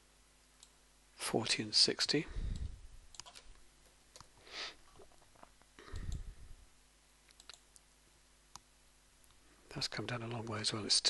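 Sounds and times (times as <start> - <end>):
soft hiss: 0.0 - 11.0
keyboard and mouse clicks: 2.5 - 4.4, 7.3 - 7.9.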